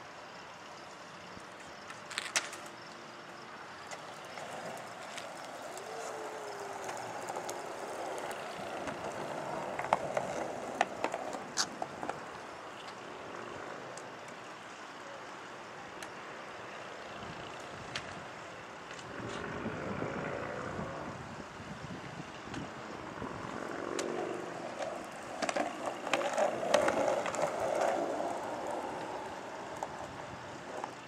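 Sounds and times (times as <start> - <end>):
skateboard wheels rolling on concrete: 0.0 - 31.0
skateboard clacks: 1.8 - 2.9, 3.8 - 14.5, 23.4 - 31.0.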